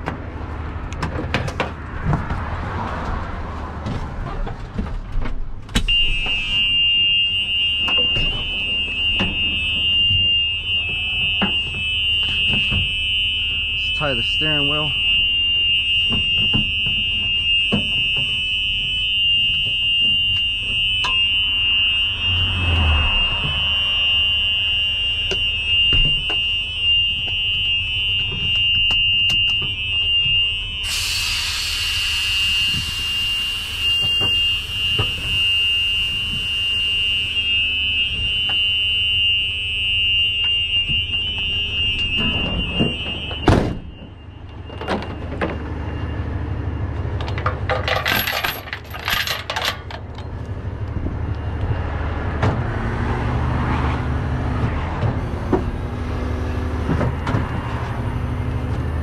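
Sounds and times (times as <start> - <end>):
warning buzzer tone: 5.9 - 46.8
hiss: 30.8 - 34.8
low engine rumble: 44.0 - 52.9
metal clinking: 47.4 - 50.0.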